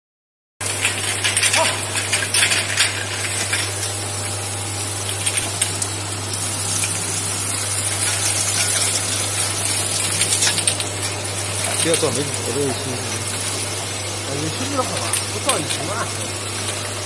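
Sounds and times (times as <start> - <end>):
machine hum: 0.6 - 17.0
constant hiss: 0.8 - 16.9.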